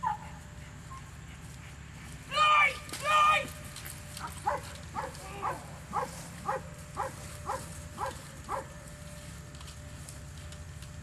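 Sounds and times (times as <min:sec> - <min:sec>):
dog barking: 0:04.4 - 0:08.7.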